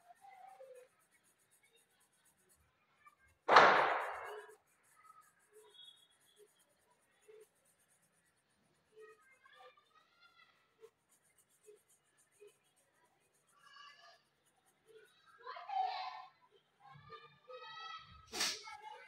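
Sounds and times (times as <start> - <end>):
loud bang: 3.5 - 4.4.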